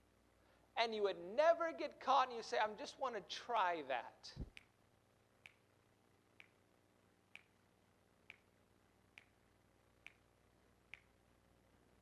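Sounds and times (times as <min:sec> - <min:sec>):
fingers snapping: 0:05.4 - 0:05.7, 0:06.4 - 0:06.6, 0:07.3 - 0:07.6, 0:08.3 - 0:08.5, 0:09.1 - 0:09.4, 0:10.0 - 0:10.3, 0:10.9 - 0:11.2.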